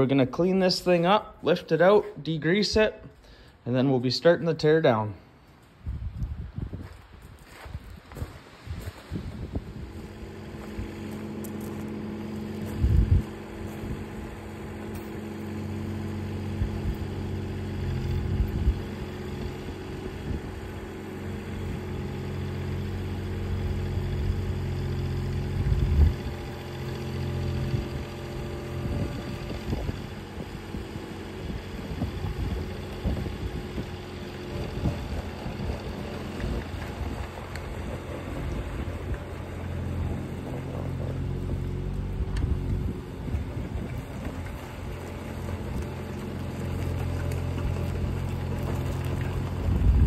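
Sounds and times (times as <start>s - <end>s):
wind buffeting microphone: 5.8s - 14.5s, 18.2s - 20.8s, 25.5s - 26.4s, 28.8s - 46.1s, 46.9s - 50.0s
diesel engine running: 7.6s - 50.0s.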